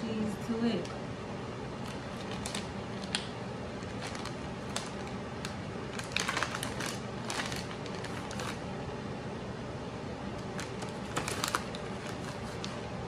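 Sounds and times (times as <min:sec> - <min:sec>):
low background hum: 0:00.0 - 0:13.0
plastic bag crinkling: 0:01.8 - 0:08.7, 0:10.4 - 0:13.0.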